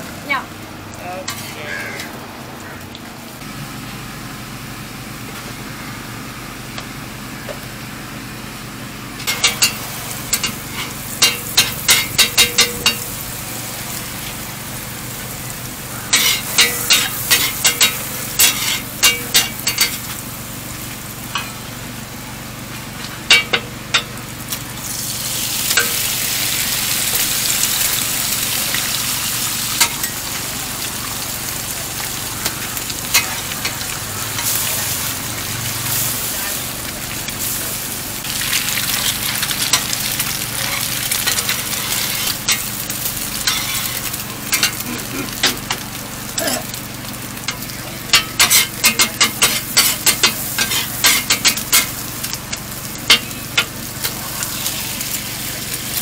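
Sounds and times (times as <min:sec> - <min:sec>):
egg sizzling on griddle: 0:00.0 - 0:03.9, 0:04.8 - 0:56.0
metal spatula scraping plate: 0:16.1 - 0:20.0, 0:43.5 - 0:44.8.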